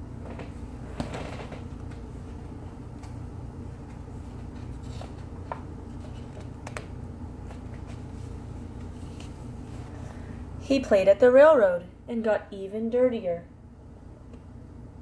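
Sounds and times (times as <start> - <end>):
low room hum: 0.0 - 15.0
book pages turning: 3.9 - 9.9.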